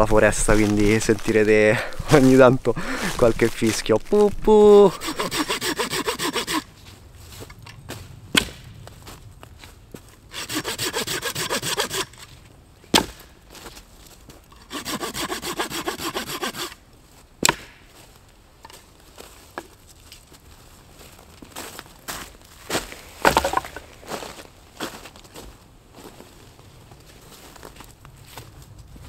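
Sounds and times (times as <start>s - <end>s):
hand saw cutting wood: 4.7s - 6.7s, 10.3s - 12.2s, 14.6s - 16.8s, 23.2s - 23.8s.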